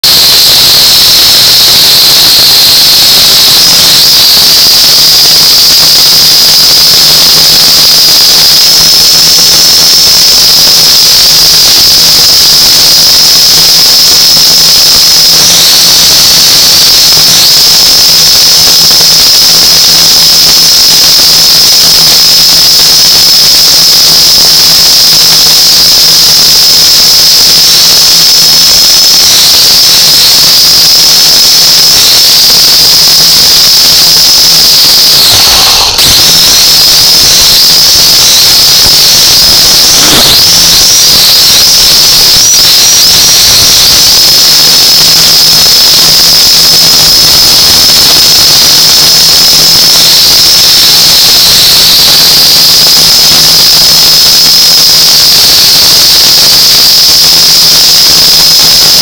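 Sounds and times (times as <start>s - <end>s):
drone motors whining: 35.2s - 37.4s, 38.0s - 41.0s.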